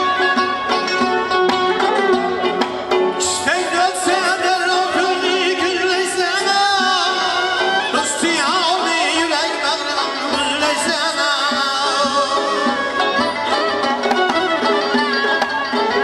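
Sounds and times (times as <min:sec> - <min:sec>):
bowed fiddle: 0:00.0 - 0:16.0
frame drum: 0:00.0 - 0:16.0
plucked lute: 0:00.0 - 0:16.0
man singing with vibrato: 0:03.1 - 0:13.4.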